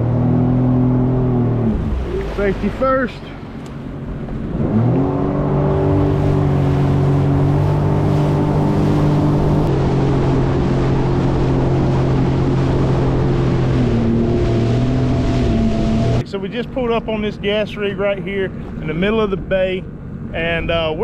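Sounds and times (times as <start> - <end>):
jet ski engine revving: 0.0 - 16.3
wind: 0.0 - 21.0.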